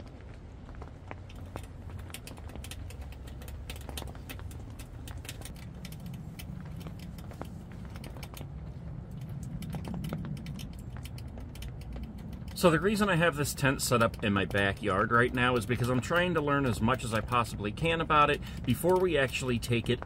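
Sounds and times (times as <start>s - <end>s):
low rumble: 0.0s - 14.2s
rain tapping on tent: 0.0s - 20.0s.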